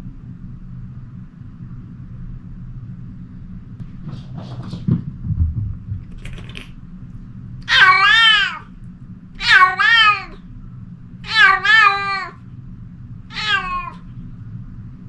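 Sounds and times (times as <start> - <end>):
cat meowing: 7.6 - 8.6, 9.4 - 10.4, 11.2 - 12.4, 13.3 - 14.0.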